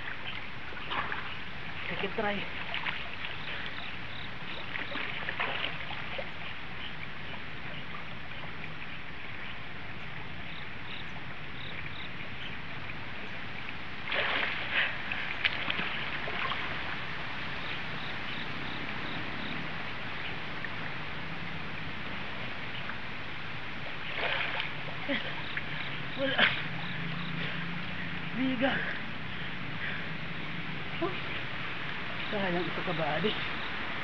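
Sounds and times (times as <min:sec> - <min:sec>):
insects chirping: 0:00.0 - 0:34.0
river rushing: 0:00.0 - 0:34.0.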